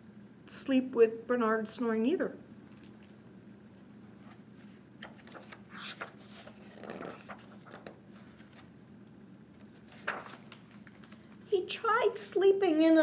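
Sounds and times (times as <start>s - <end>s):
book pages rustling: 4.2s - 8.7s, 9.6s - 11.4s.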